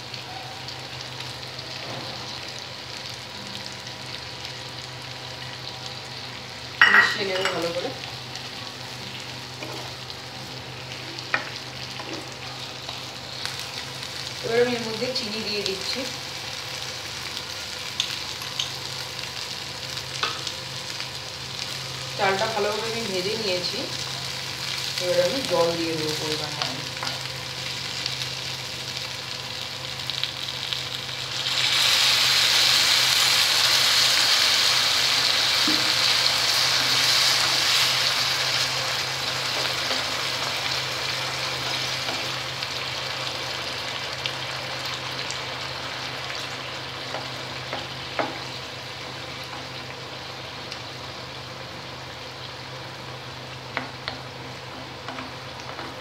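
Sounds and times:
water sizzling in hot pan: 0.0s - 56.0s.

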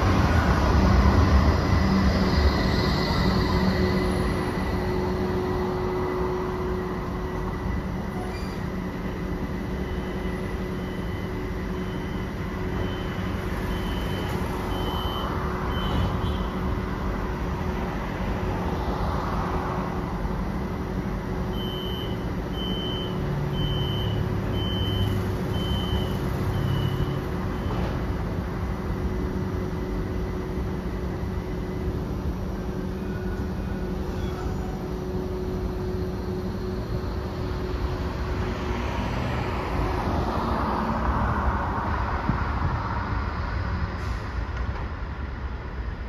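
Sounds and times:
low rumble of traffic: 0.0s - 46.0s
tram equipment humming: 0.0s - 46.0s
high electronic beep: 10.8s - 16.1s, 21.5s - 27.8s.

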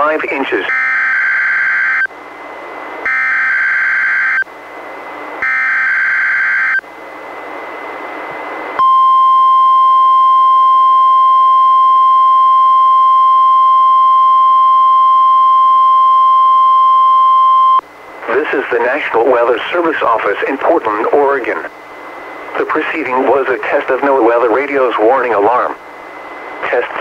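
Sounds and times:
steady warning alarm tone: 0.6s - 2.2s, 3.0s - 4.5s, 5.4s - 6.9s, 8.8s - 17.8s
radio hiss: 18.1s - 27.0s.

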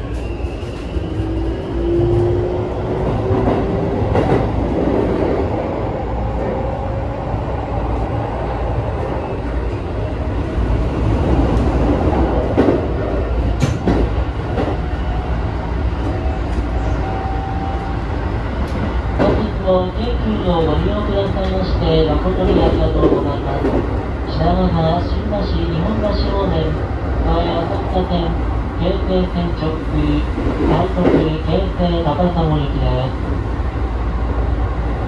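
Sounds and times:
rail joint clicks: 11.2s - 14.8s, 18.6s - 19.5s.

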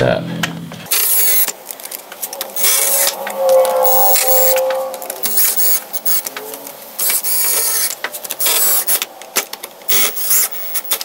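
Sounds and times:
cordless drill driving screws: 0.9s - 1.5s, 7.0s - 9.0s, 9.9s - 11.0s.

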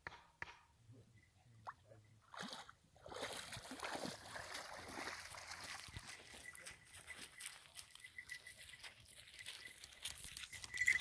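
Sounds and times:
water sloshing and splashing: 2.2s - 10.0s.

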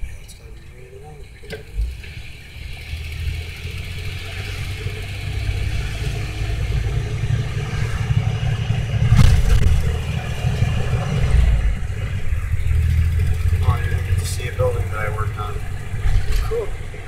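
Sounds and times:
car engine and road rumble: 0.0s - 17.0s
brief thump: 9.1s - 9.8s.

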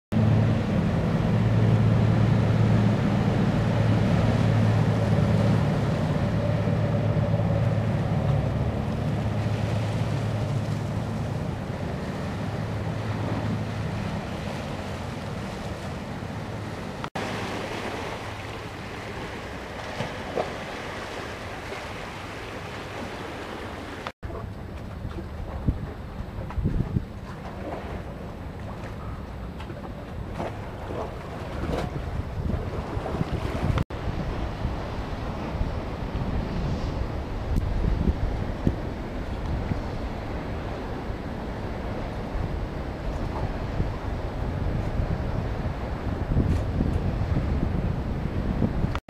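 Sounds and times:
ferry engines droning: 0.1s - 31.6s
water wash: 0.1s - 49.0s
waves washing against stony bank: 0.2s - 49.0s
wind on microphone: 24.3s - 49.0s.

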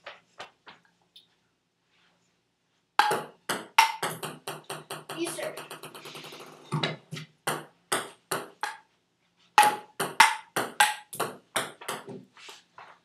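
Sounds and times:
ping-pong ball hitting paddles: 3.0s - 8.9s, 9.6s - 12.2s.

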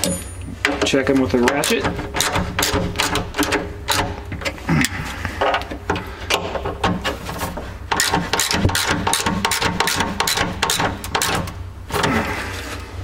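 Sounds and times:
steady low hum: 0.0s - 13.0s
hand ratchet clicking: 8.0s - 11.5s.

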